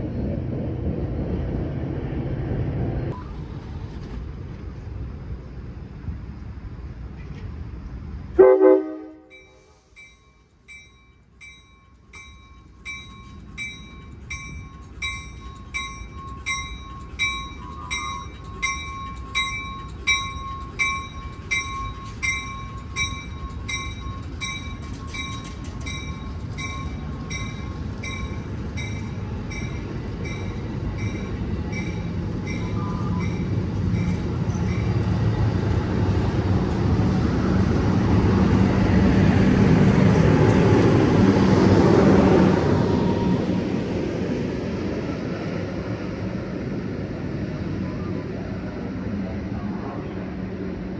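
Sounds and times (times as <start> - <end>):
diesel train engine rumble: 0.0 - 50.9
bell ringing: 9.3 - 34.2.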